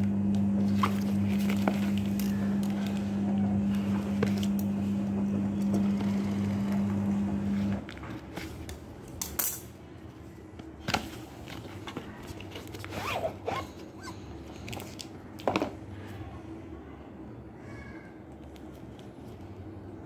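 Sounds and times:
squeaky cardboard scrapes: 11.6 - 14.3.

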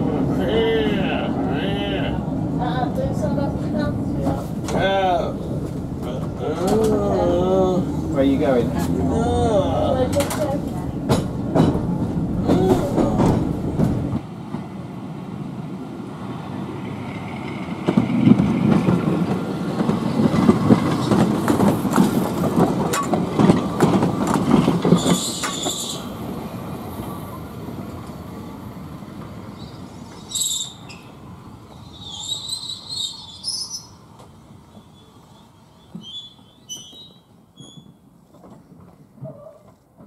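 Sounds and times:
electric tram rumbling on rails: 0.0 - 40.0
wheels clicking over rail joints: 2.9 - 14.7, 16.9 - 26.3, 35.8 - 40.0
high wheel squeal: 24.9 - 26.2, 29.6 - 34.0, 34.7 - 38.0.

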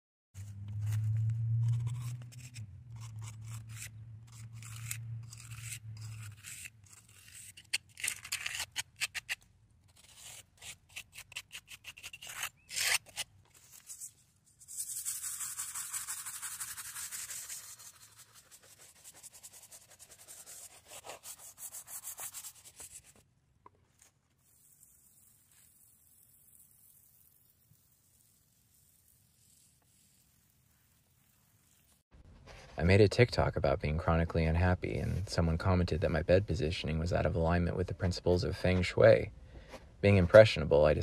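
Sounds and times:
low hum: 0.4 - 6.4
brush scrubbing stone: 0.4 - 23.2, 24.0 - 32.0.

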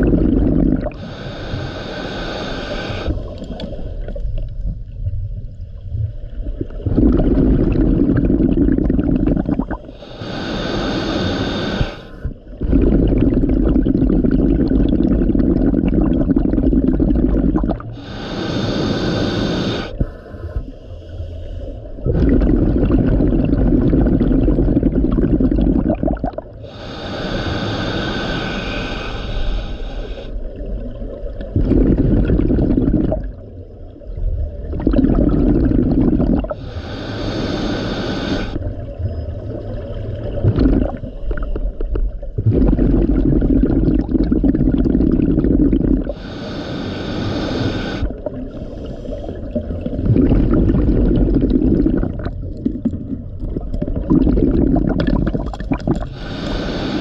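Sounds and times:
exhaled bubbles rumbling: 0.0 - 1.8, 2.4 - 20.7, 21.8 - 27.5, 29.5 - 57.0
regulator hissing inhalation: 0.4 - 3.3, 9.3 - 12.3, 17.8 - 22.0, 26.5 - 30.5, 35.6 - 38.6, 45.5 - 49.6, 55.9 - 57.0.

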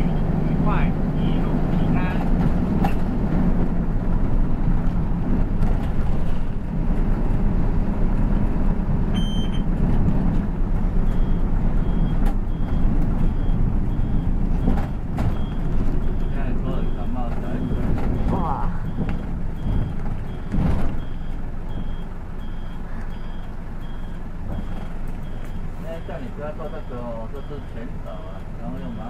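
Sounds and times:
bus engine and road rumble: 0.0 - 29.0
repeating high beep: 9.2 - 9.7
short electronic beep: 9.2 - 9.7.

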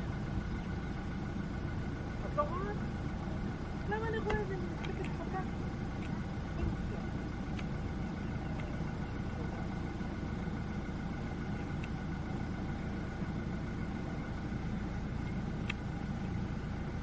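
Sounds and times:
vehicle engine idling: 0.0 - 17.0
faint clicks: 8.5 - 8.8, 15.6 - 16.4.

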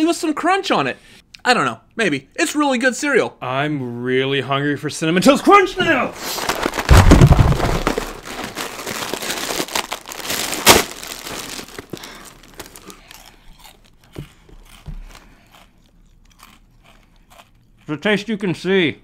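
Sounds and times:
plastic bag ripping: 5.8 - 13.0
plastic bag crinkling: 5.8 - 13.8
cereal crunching: 5.9 - 17.6.

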